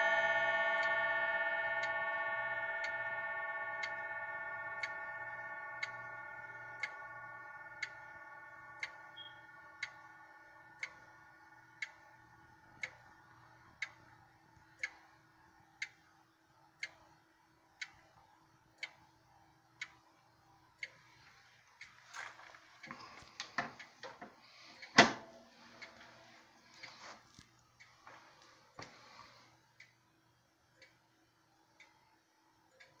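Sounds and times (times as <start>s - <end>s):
clock chime ringing: 0.0s - 11.9s
clock ticking: 0.0s - 33.0s.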